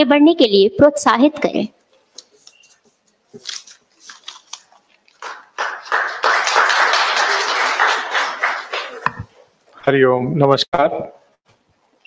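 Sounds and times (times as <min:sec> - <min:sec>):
audience applauding: 0:05.2 - 0:09.3.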